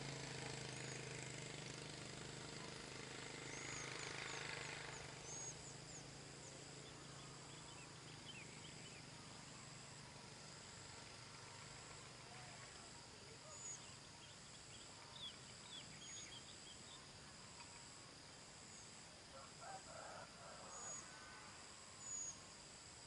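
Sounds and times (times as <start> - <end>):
insect trilling: 0.3 - 18.1
faint bird chirps: 2.5 - 18.1, 20.6 - 22.6.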